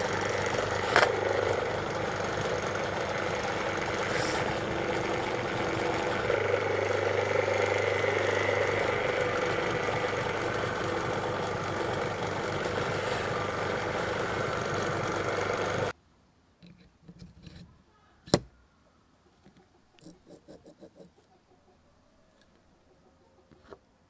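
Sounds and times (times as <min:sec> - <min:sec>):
bench grinder running: 0:00.0 - 0:15.9.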